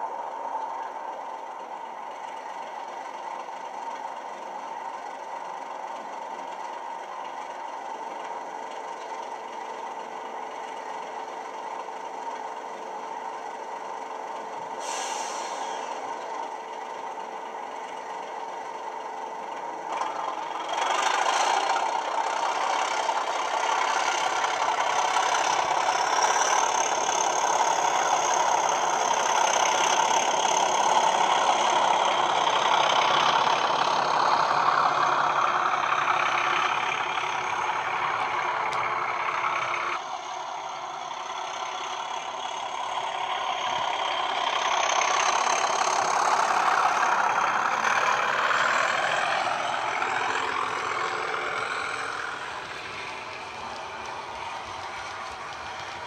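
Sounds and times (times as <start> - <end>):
model diesel locomotive engine: 0.0 - 56.0
high turbo whistle: 14.8 - 16.1.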